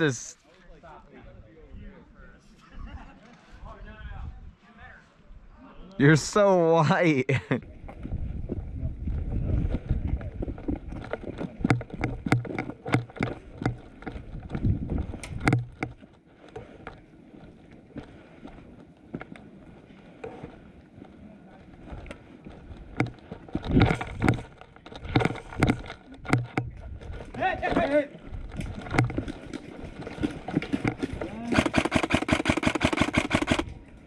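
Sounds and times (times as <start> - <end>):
gear knocking and rattling: 10.5 - 16.0, 22.7 - 33.6
footsteps on asphalt: 13.4 - 23.7.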